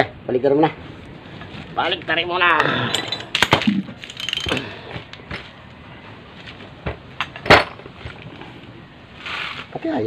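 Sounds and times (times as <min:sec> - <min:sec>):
metal tools clinking: 0:02.6 - 0:04.9.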